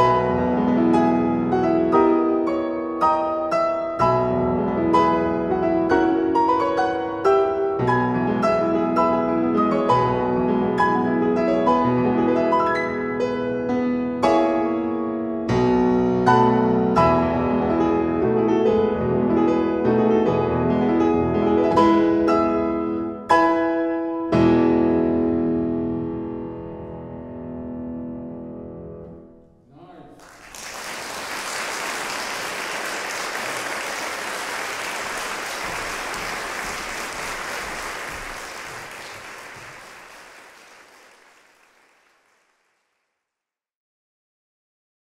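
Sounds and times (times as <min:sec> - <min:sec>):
audience applauding: 0:30.2 - 0:42.9.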